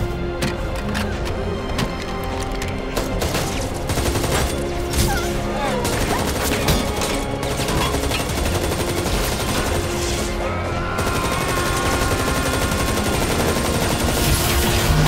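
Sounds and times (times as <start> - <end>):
film score music: 0.0 - 15.0
automatic gunfire: 11.0 - 14.7.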